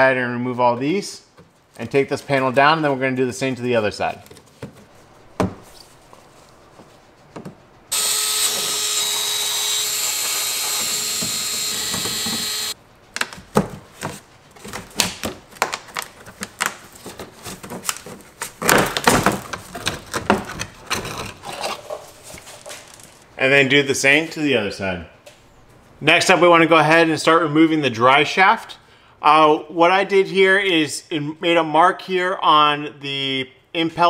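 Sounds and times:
cordless power tool running: 7.9 - 12.8.

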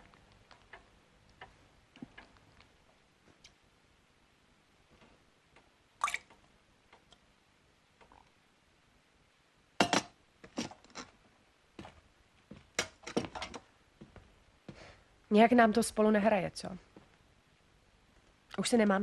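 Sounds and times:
cutlery and crockery clinking: 9.8 - 11.1.

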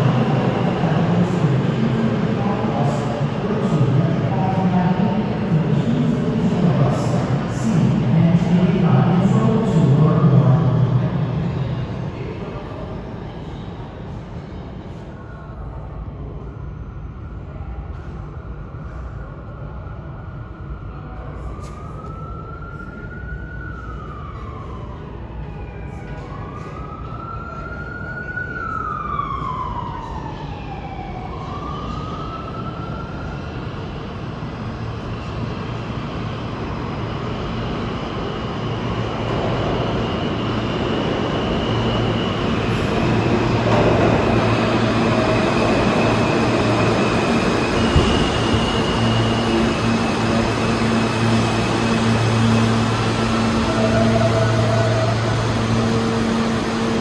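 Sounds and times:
subway train rumbling: 0.0 - 57.0
emergency vehicle siren wailing: 21.3 - 34.3, 36.8 - 57.0.

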